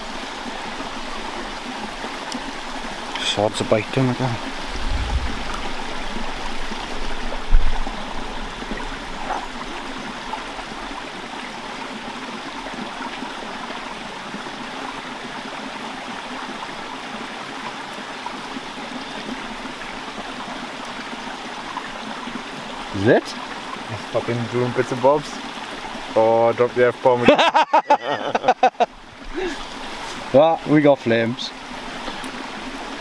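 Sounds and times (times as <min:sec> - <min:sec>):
stream running: 0:00.0 - 0:33.0
low thump: 0:04.7 - 0:06.3.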